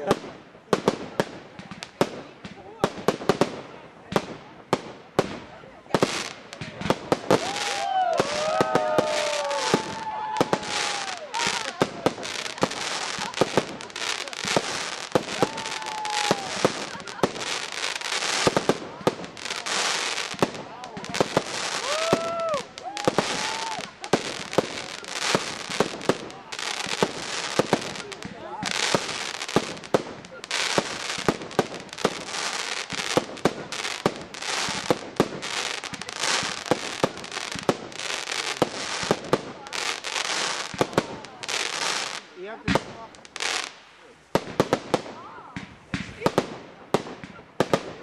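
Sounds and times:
fireworks bursting with sharp bangs: 0.0 - 48.0
fireworks crackling: 0.0 - 48.0
falling firework whistle: 21.7 - 24.0.

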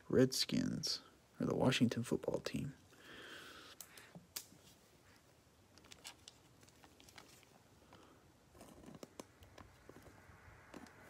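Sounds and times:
crackles: 3.6 - 11.0
plastic sleeve crinkling: 5.6 - 10.0.

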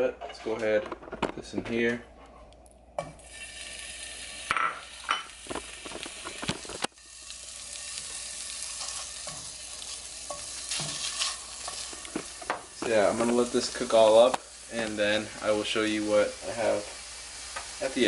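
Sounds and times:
meat sizzling in a frying pan: 3.0 - 18.0
wooden spatula scraping a pan: 8.6 - 14.0.

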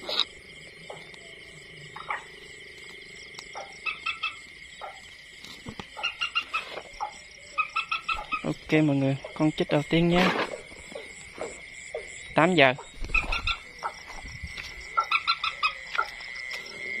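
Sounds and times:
faint high whine: 0.0 - 4.4
waterbird calling: 3.6 - 4.4, 7.5 - 8.6, 13.1 - 14.0.

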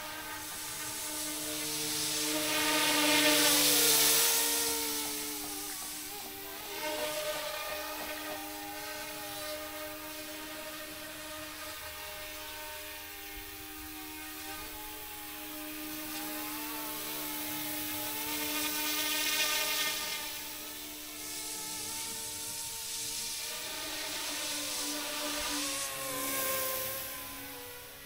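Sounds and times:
model helicopter motor whine: 0.0 - 28.0
hissing rush: 0.2 - 8.3.

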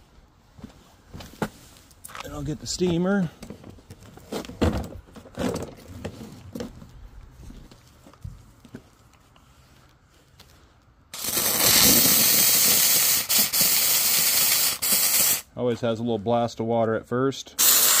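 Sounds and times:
hose handling knocks and rustles: 1.2 - 6.9
steam hissing from nozzle: 11.2 - 15.4, 17.6 - 18.0.

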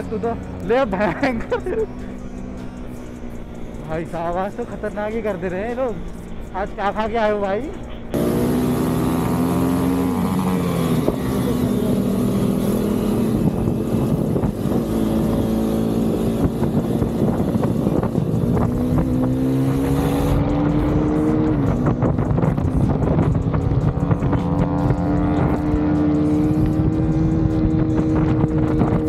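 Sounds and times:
motorcycle engine revving: 8.1 - 29.0
wind rushing over microphone: 10.6 - 29.0.

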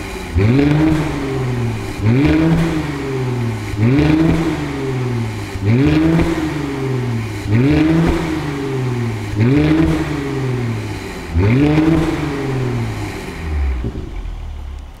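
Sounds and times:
car engine idling: 0.0 - 15.0
car engine revving: 0.0 - 15.0.

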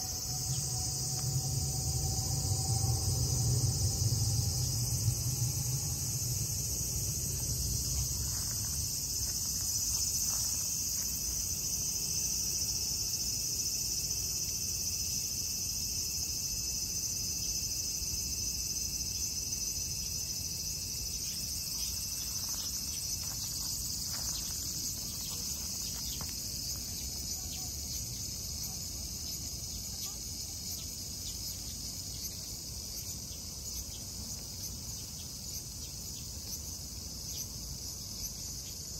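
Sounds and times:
low rumble: 0.0 - 10.2
insects chirring: 0.0 - 38.9.

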